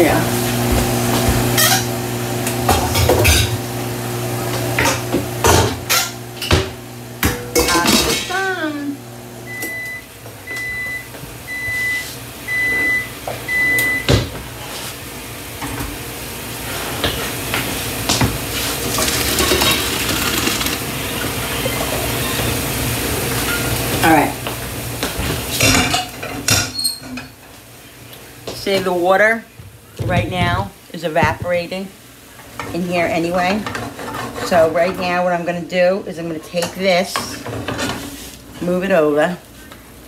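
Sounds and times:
microwave oven humming: 0.0s - 28.5s
pots and utensils clattering: 0.6s - 3.6s, 4.5s - 8.5s, 16.8s - 22.2s, 25.0s - 27.4s, 32.4s - 35.2s, 36.4s - 38.2s
microwave beeps: 9.4s - 14.3s, 21.0s - 22.8s, 23.4s - 23.8s.

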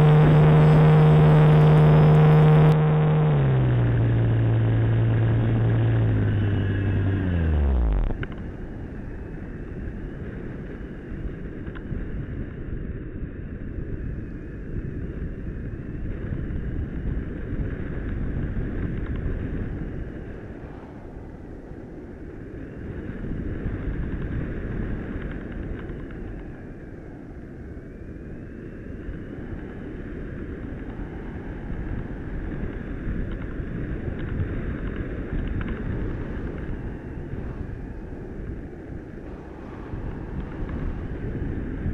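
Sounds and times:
thin whine: 0.0s - 41.9s
air rushing over camera: 18.7s - 24.5s, 30.4s - 41.9s.

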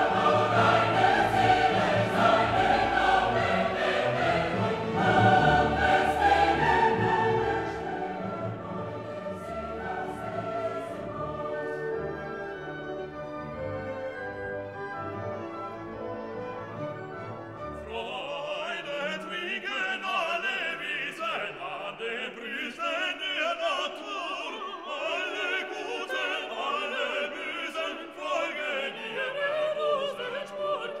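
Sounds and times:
operatic singing voice: 0.0s - 11.8s, 17.8s - 31.0s
orchestra playing: 0.0s - 19.0s.

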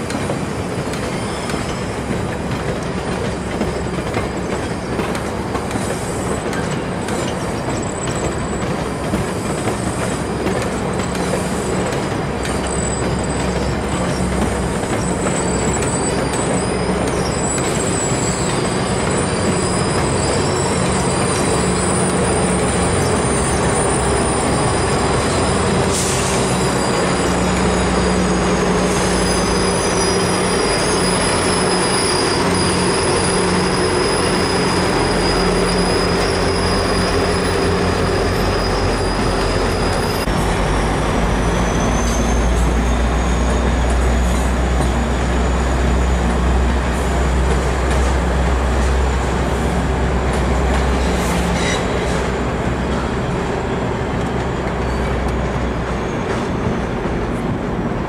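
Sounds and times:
diesel locomotive engine hum: 0.0s - 58.0s
train rumble: 0.0s - 58.0s
train wheels squealing: 0.0s - 58.0s.

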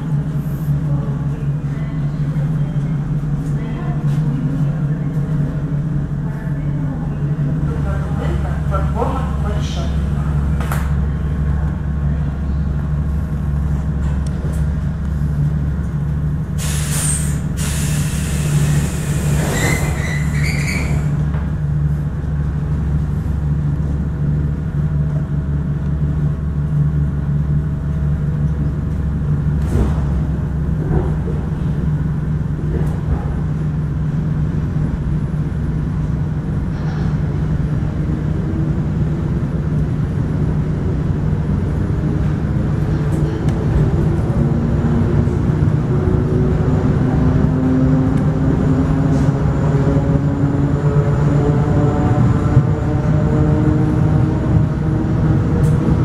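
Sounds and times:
air hiss: 16.6s - 19.8s.

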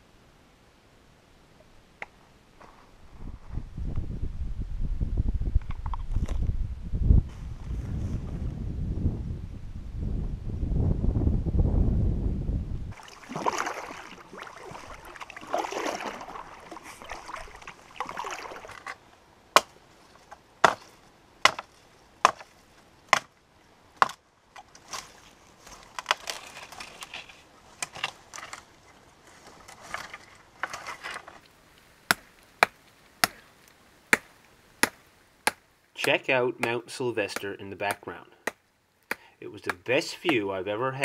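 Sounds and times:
axe chopping firewood: 19.6s - 19.8s, 20.6s - 22.5s, 23.1s - 23.3s, 24.0s - 24.2s, 32.1s - 33.5s, 34.1s - 40.5s
rustling: 24.6s - 35.3s.

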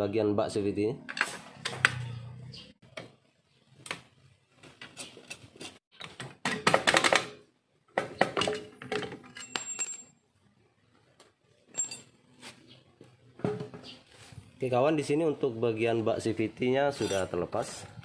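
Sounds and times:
metallic clicks and clinks of tools: 8.4s - 10.2s, 11.7s - 12.1s.

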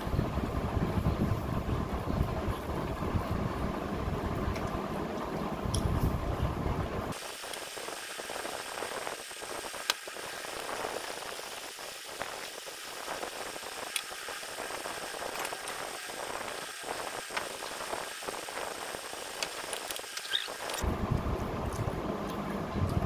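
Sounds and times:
steady hiss: 7.1s - 20.9s.

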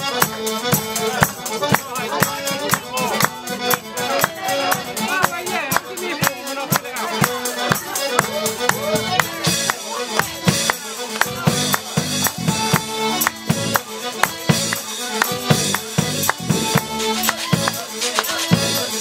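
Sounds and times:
bass guitar: 0.0s - 19.0s
drums and hand percussion: 0.0s - 19.0s
folk band playing: 0.0s - 19.0s
tuba: 6.5s - 19.0s.

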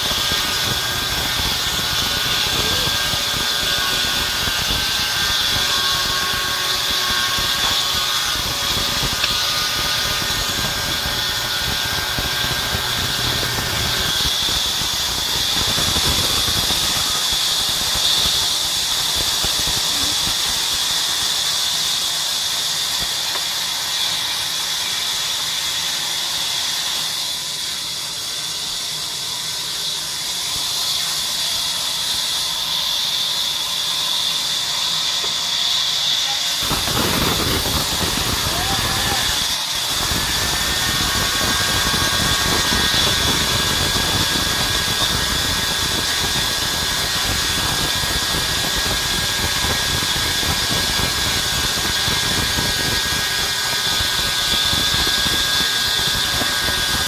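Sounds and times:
band saw ripping wood: 0.0s - 20.9s.

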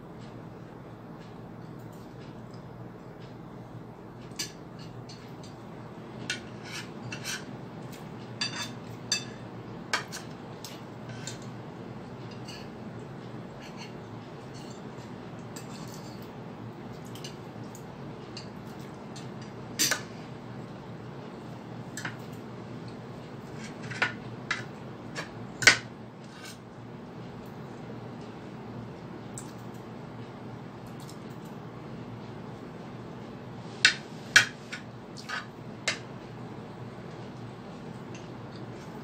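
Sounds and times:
cutlery clinking on a plate: 8.4s - 9.4s, 15.6s - 16.3s, 18.4s - 20.1s.

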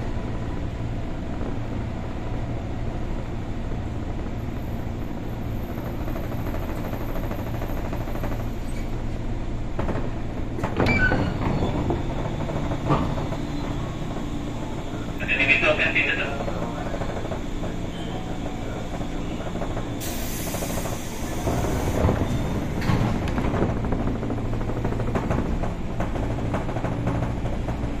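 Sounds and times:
train equipment humming: 7.0s - 28.0s
train doors sliding open: 9.8s - 16.2s, 16.9s - 27.8s.

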